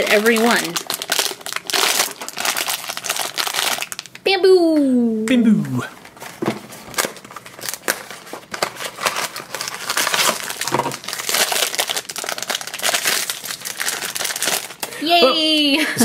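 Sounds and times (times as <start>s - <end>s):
foil wrapper crinkling and tearing: 0.0s - 4.3s, 6.8s - 15.0s.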